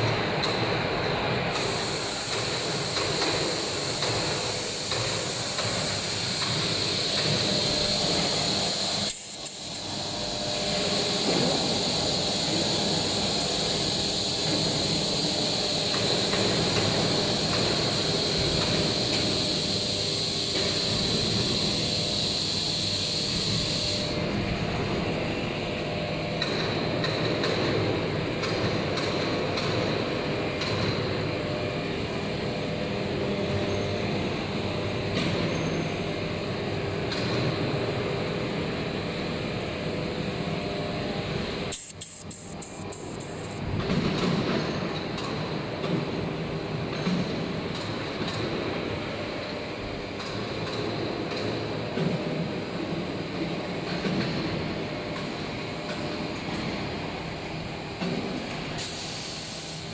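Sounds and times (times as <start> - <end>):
coolant spray hiss: 1.5 - 24.2, 41.7 - 43.6, 58.6 - 59.9
high steady whine: 1.6 - 26.2, 40.9 - 43.8.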